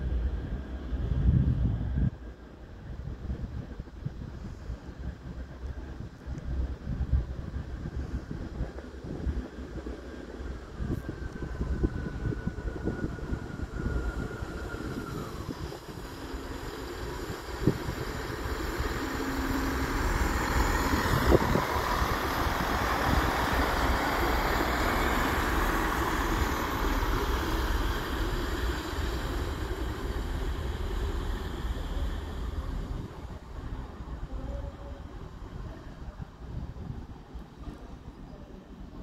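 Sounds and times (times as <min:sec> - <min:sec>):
wheels rumbling on rails: 0:00.0 - 0:39.0
diesel engine hum: 0:14.9 - 0:35.6.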